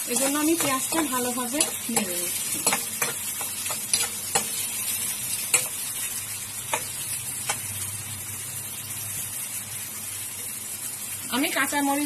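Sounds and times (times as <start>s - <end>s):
onions sizzling in hot oil: 0.0s - 12.0s
metal spatula clinking against pan: 0.1s - 4.6s.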